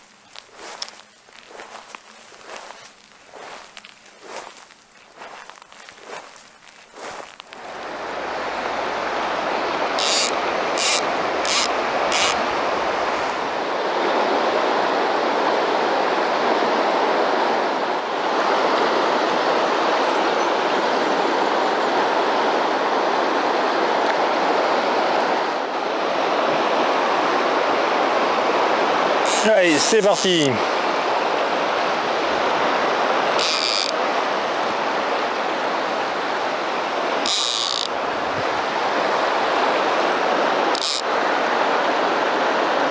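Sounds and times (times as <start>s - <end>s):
river water rushing: 0.0s - 42.9s
short high rasps: 10.0s - 12.4s, 33.4s - 33.9s, 37.2s - 37.9s, 40.7s - 41.0s.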